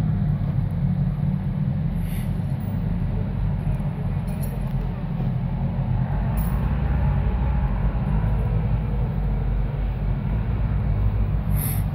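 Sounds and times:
off-road vehicle engine rumble: 0.0s - 11.9s.

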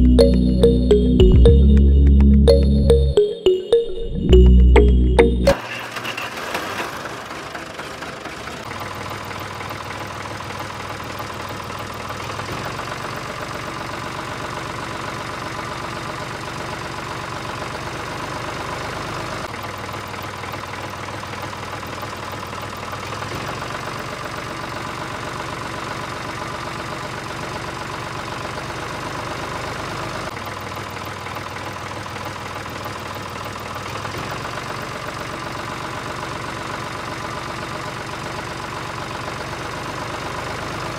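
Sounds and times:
tractor engine idling: 5.6s - 17.8s.

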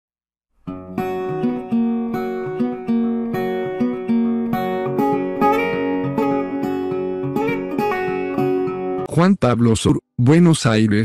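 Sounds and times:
strummed guitar chords: 0.7s - 9.1s.

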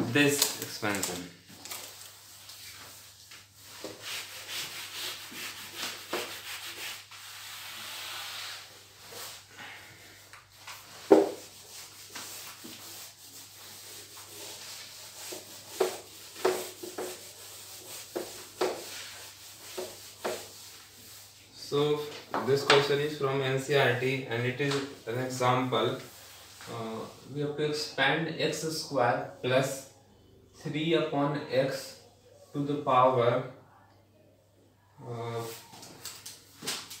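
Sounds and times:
eraser rubbing on whiteboard: 2.2s - 9.5s, 10.5s - 21.4s.

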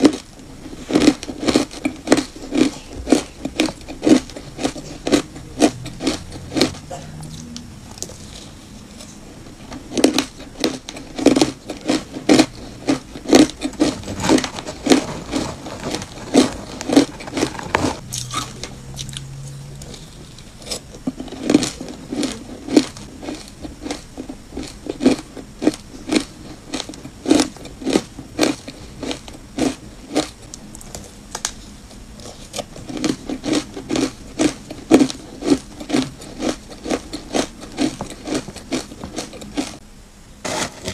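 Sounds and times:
crisp crunches of chewing ice: 0.0s - 6.8s, 9.7s - 18.3s, 19.8s - 30.4s, 32.2s - 39.8s.

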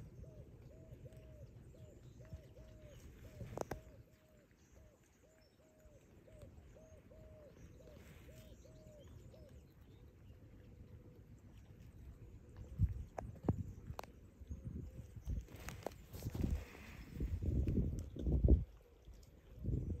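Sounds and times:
bird hooting: 0.1s - 9.5s.

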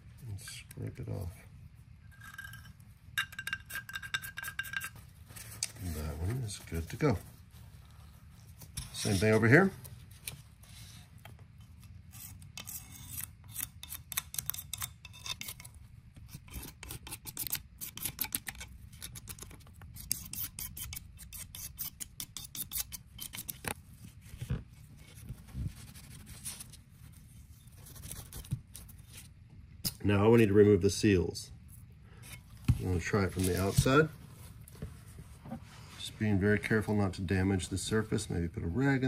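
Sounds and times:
razor blade scraping metal: 12.1s - 19.4s, 20.0s - 23.7s.

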